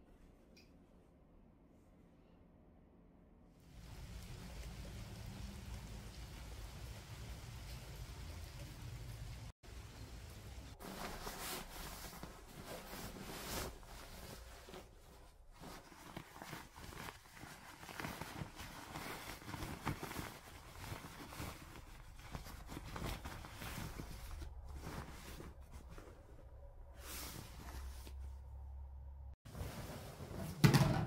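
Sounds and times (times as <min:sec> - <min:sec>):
bedding rustling and swishing: 0:06.6 - 0:28.6, 0:29.4 - 0:31.0.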